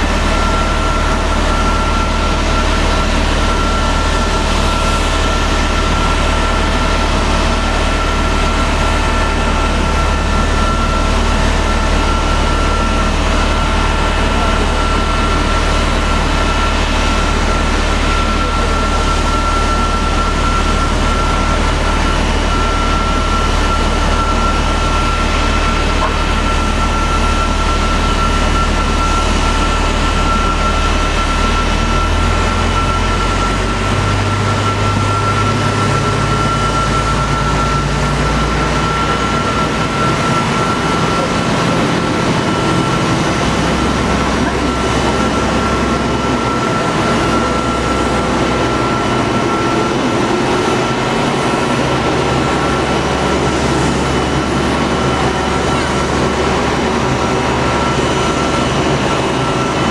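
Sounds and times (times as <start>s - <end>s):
jet turbine whine: 0.0s - 59.9s
jet engine rumble: 33.2s - 59.9s.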